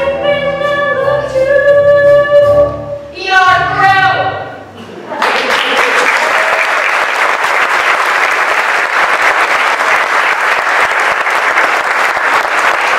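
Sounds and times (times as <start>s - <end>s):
audience applauding: 5.2s - 12.9s.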